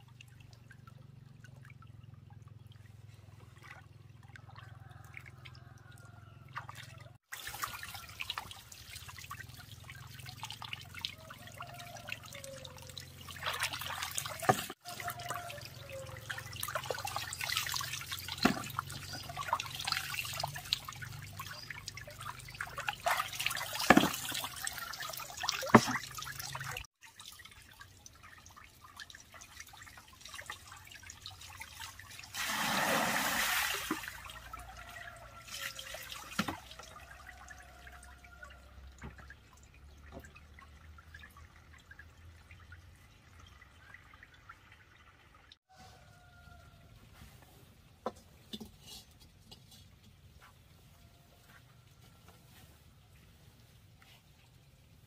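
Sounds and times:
water splashing in basin: 0.0 - 45.1
rush of water: 32.3 - 36.5.

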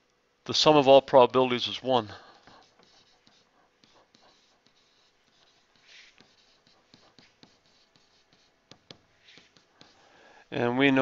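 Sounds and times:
stylus scratching and tapping screen: 2.3 - 10.0.

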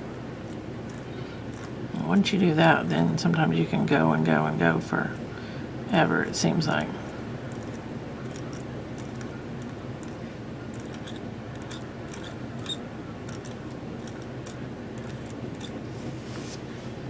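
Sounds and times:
low room hum: 0.0 - 17.0
metal nib scratching on glass: 0.5 - 1.8, 7.5 - 15.8.

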